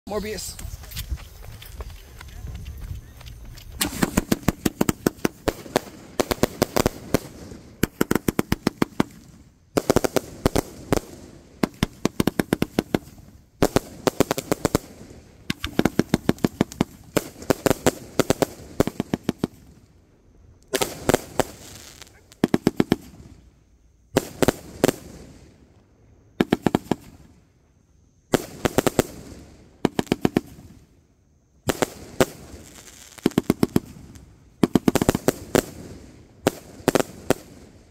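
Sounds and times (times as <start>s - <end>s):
fireworks popping and crackling: 0.1s - 20.0s, 20.6s - 23.5s, 24.1s - 25.7s, 26.4s - 27.4s, 28.3s - 30.9s, 31.6s - 37.9s.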